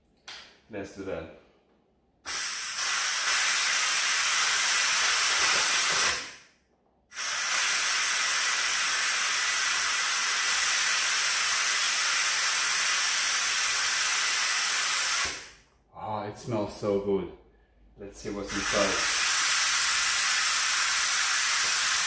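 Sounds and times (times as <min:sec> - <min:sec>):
steam hissing from valve: 0:02.3 - 0:06.4, 0:07.1 - 0:15.6, 0:18.4 - 0:22.0.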